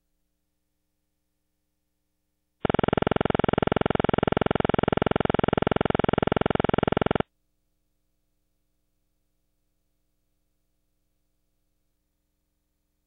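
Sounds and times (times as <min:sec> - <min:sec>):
pulsing electronic buzzing tone: 0:02.6 - 0:07.2.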